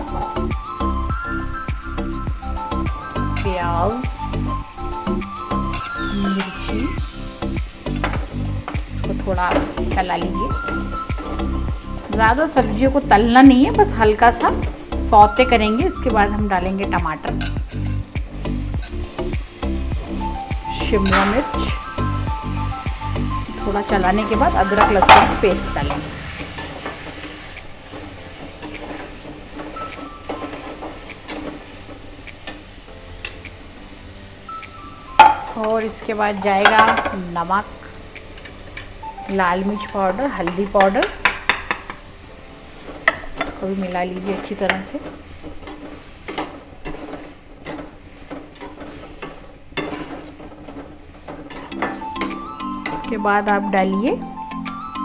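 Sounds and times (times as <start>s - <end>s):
vegetables sizzling: 0.0s - 55.0s
spoon scraping metal pan: 42.8s - 53.6s.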